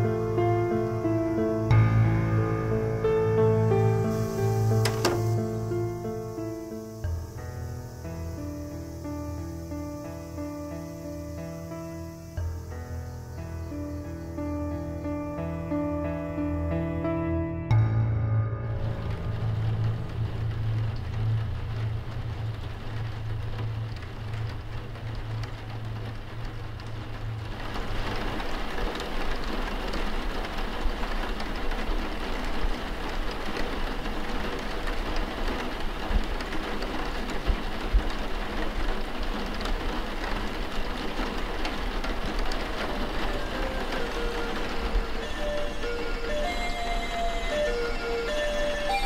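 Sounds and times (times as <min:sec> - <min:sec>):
steady rain: 0:00.0 - 0:49.0
low steady drone: 0:41.6 - 0:49.0.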